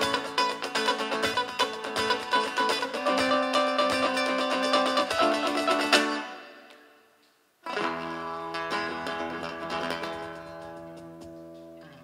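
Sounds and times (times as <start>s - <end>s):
live band music: 0.0s - 6.7s, 7.7s - 11.8s
strummed guitar chord ringing: 0.0s - 6.8s.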